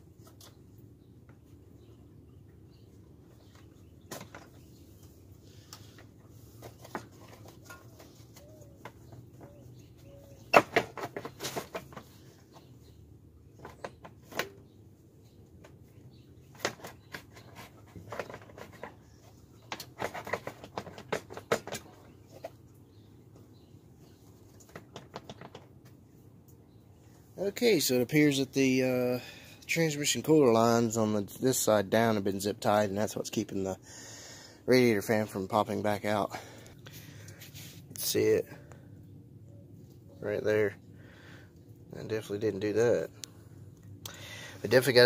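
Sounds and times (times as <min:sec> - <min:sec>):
plastic fan shroud rattling: 0:19.6 - 0:22.4.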